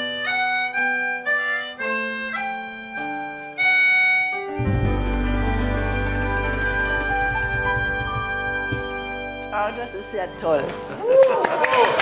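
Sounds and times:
harmonica melody: 0:00.0 - 0:11.1.

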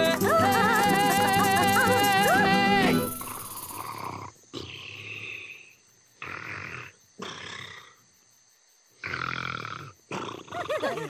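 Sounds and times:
cartoon snoring: 0:03.2 - 0:08.0, 0:09.0 - 0:10.8.

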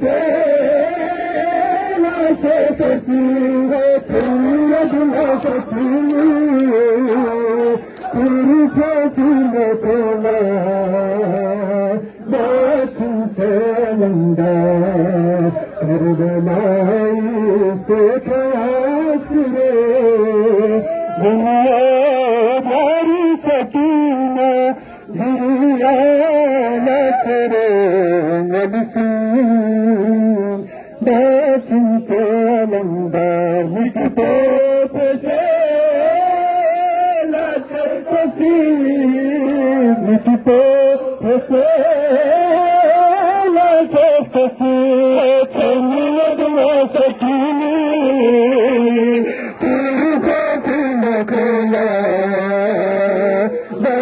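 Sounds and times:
man chanting a lament: 0:00.0 - 0:54.0
hands slapping chests: 0:05.0 - 0:09.0.

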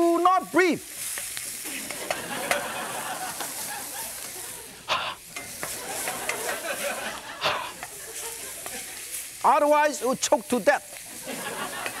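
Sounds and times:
meat sizzling in a wok: 0:00.0 - 0:12.0
wooden spatula scraping a pan: 0:00.9 - 0:09.4.

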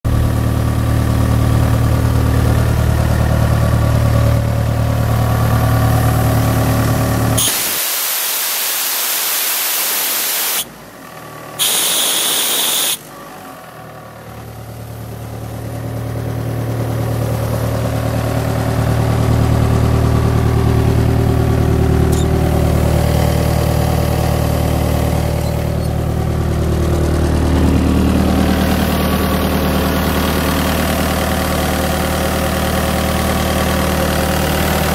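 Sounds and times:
diesel compressor engine idling: 0:00.1 - 0:07.4, 0:10.6 - 0:34.9
loud rushing hiss: 0:07.4 - 0:10.7, 0:11.6 - 0:13.0.

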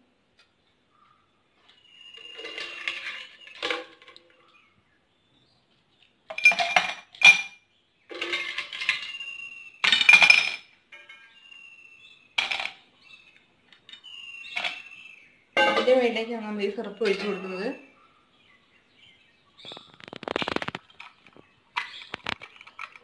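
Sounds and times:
ice cubes clinking in glass: 0:02.2 - 0:04.0, 0:08.2 - 0:10.6
glass ringing: 0:14.0 - 0:17.9.

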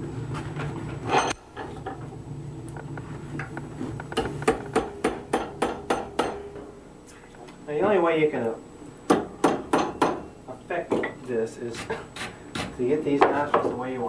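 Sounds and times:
hammer striking metal punch: 0:04.2 - 0:06.6, 0:09.1 - 0:10.2.

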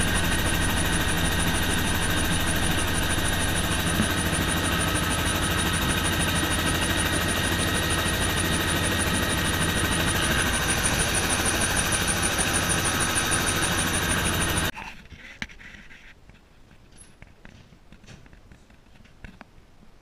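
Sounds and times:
helicopter engine whine and rotor: 0:00.0 - 0:14.7.

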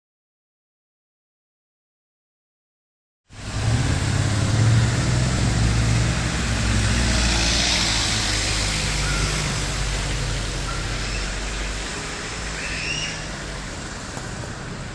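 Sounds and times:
car engines running: 0:03.3 - 0:14.9
tyres hissing on road: 0:03.3 - 0:14.9.

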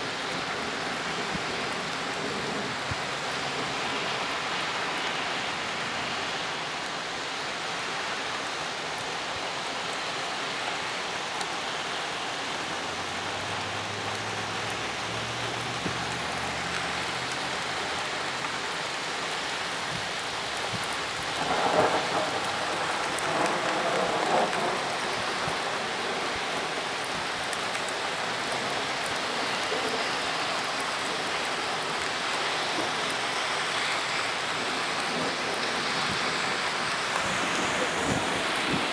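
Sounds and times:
steady rain falling: 0:00.0 - 0:38.9
thunder rumbling: 0:20.6 - 0:26.8, 0:34.5 - 0:38.9.

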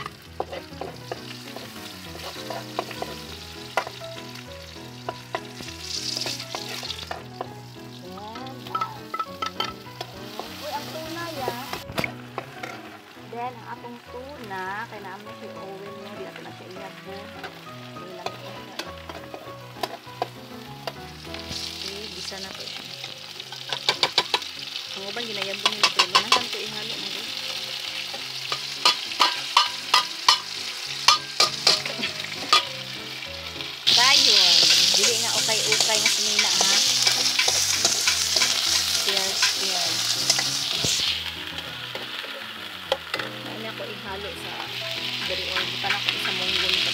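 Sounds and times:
metal spoon tapping a pan: 0:00.0 - 0:04.0, 0:05.0 - 0:05.6, 0:08.4 - 0:10.5, 0:18.2 - 0:21.0, 0:23.5 - 0:24.6, 0:25.5 - 0:26.6, 0:28.5 - 0:32.8, 0:33.9 - 0:40.5, 0:45.2 - 0:46.9
food sizzling in a pan: 0:00.0 - 0:46.9
quiet background music: 0:00.0 - 0:46.9.

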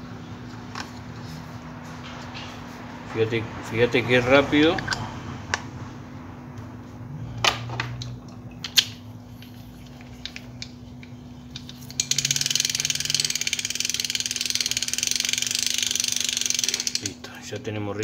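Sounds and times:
fishing reel ratchet clicking: 0:11.5 - 0:17.2
fishing reel knocks: 0:11.6 - 0:17.1.

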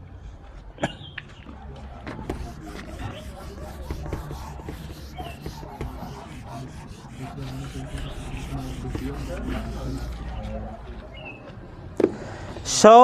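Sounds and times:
duster scrubbing whiteboard: 0:02.1 - 0:10.8.

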